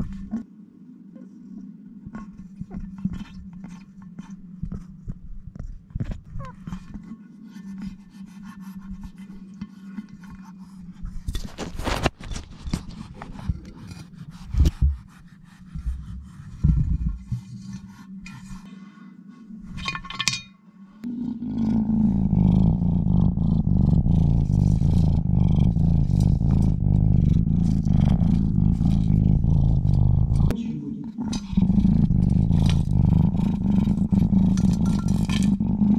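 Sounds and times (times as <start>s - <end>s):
loud low rumble: 21.2s - 35.3s.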